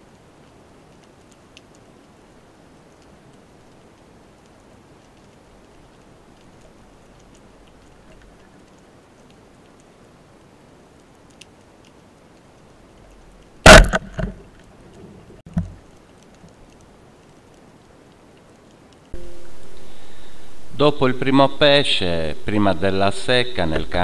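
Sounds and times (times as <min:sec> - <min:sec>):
small ticks: 0:00.0 - 0:13.6, 0:14.3 - 0:19.2
speargun firing crack: 0:13.7 - 0:14.4
faint underwater hiss: 0:19.2 - 0:24.0.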